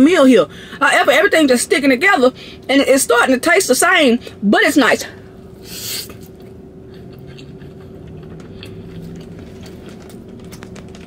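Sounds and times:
wet chewing: 0:05.9 - 0:11.0.

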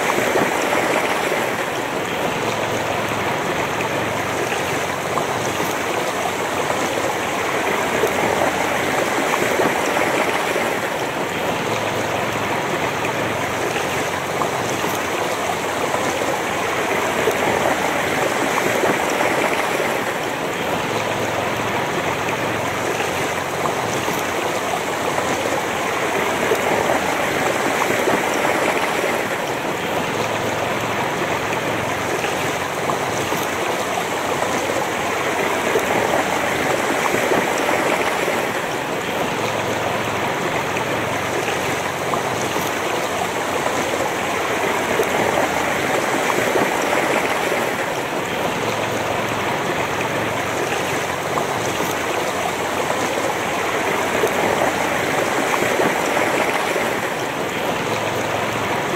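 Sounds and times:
river rushing over stones: 0:00.0 - 0:58.9.

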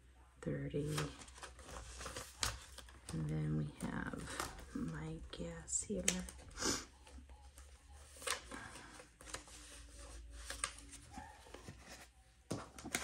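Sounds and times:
paper rustling: 0:00.8 - 0:05.0, 0:07.3 - 0:13.0.

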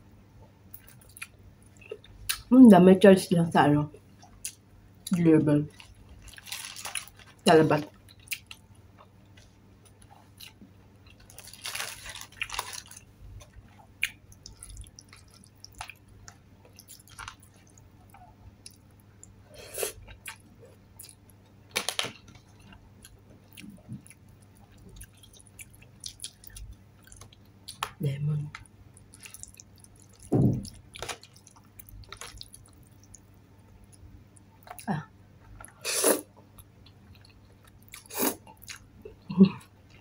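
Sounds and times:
chewing and mouth sounds: 0:05.7 - 0:19.4, 0:22.3 - 0:34.9, 0:36.4 - 0:40.0.

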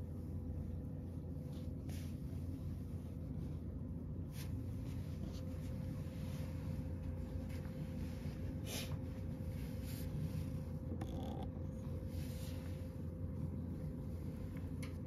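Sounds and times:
soft rustles: 0:00.0 - 0:10.9
room heater humming: 0:00.0 - 0:15.0.

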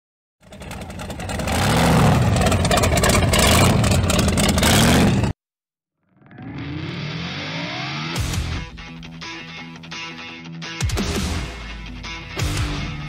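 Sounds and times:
car engine revving hard: 0:00.4 - 0:05.3
rapid crackling: 0:00.4 - 0:05.3.

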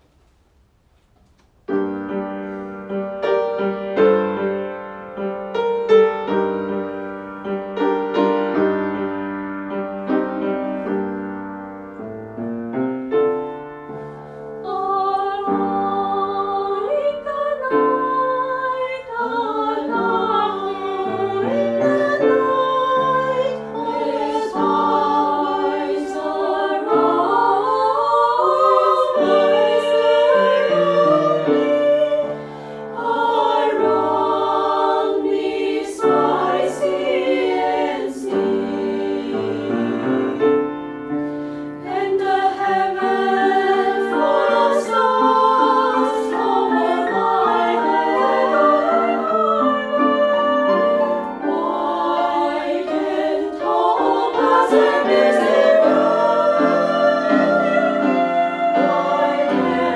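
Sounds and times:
piano chords: 0:01.7 - 0:59.9
women's voices singing with vibrato: 0:14.6 - 0:40.4, 0:41.8 - 0:59.9.

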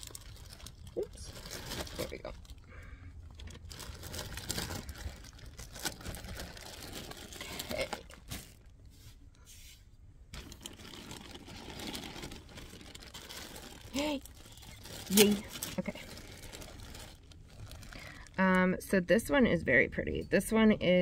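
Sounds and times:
plastic bag crinkling: 0:00.0 - 0:08.8, 0:10.4 - 0:18.6.

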